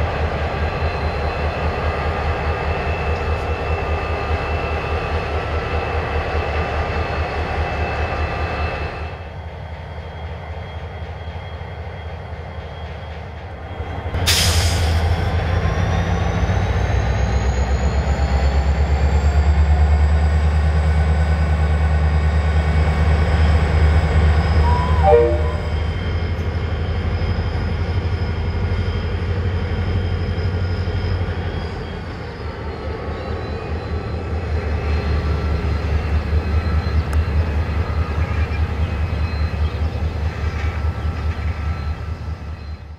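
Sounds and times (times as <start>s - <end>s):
locomotive engine rumble: 13.2s - 42.7s
high whine: 24.5s - 26.2s
short falling chirp: 24.6s - 25.9s.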